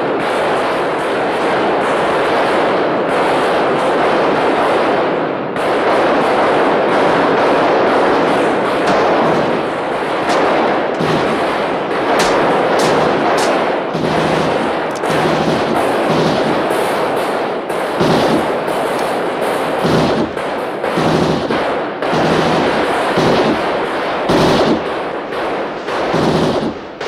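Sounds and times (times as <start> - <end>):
handguns firing in volley: 5.6 - 27.0
sharp single gunshot cracks: 7.2 - 17.3, 19.8 - 27.0.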